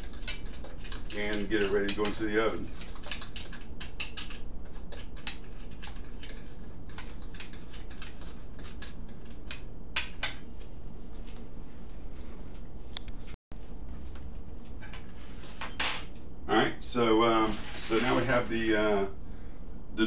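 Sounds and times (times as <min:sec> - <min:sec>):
spoon stirring in glass bowl: 0:00.0 - 0:09.6.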